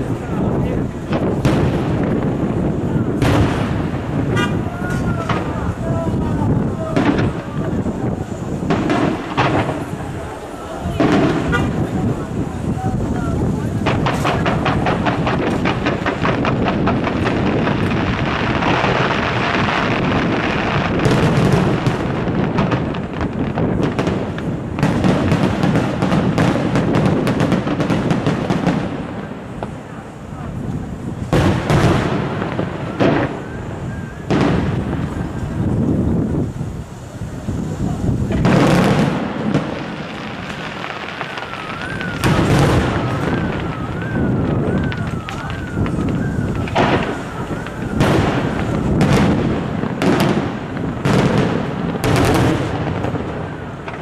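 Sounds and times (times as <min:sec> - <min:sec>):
fireworks launching and bursting: 0:00.0 - 0:54.0
siren wailing: 0:41.1 - 0:48.9.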